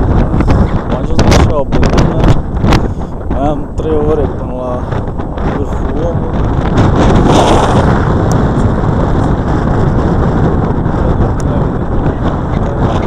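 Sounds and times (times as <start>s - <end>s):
strong wind buffeting microphone: 0.0s - 13.0s.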